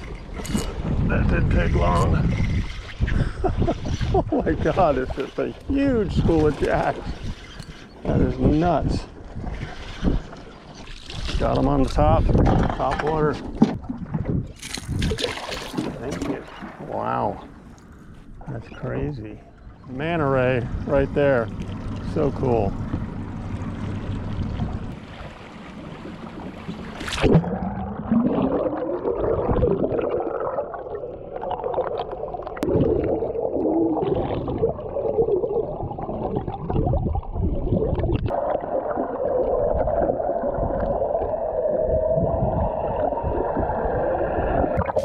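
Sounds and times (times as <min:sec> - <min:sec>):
camera splashing into sea: 0:11.0 - 0:17.6, 0:24.1 - 0:30.2
muffled underwater gurgling: 0:18.4 - 0:25.0, 0:25.8 - 0:45.0.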